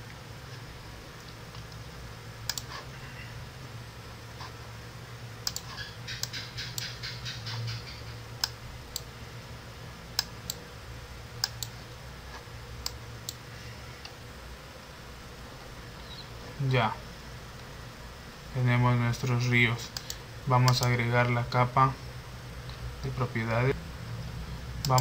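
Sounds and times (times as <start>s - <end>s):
steady low hum: 0.0s - 25.0s
mouse clicks: 2.5s - 2.8s, 5.4s - 7.6s, 11.4s - 11.8s, 19.9s - 21.0s.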